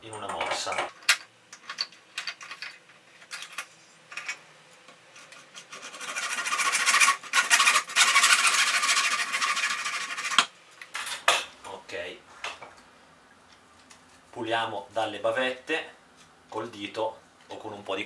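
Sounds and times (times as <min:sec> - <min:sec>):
hand saw cutting plastic: 0:05.6 - 0:10.5.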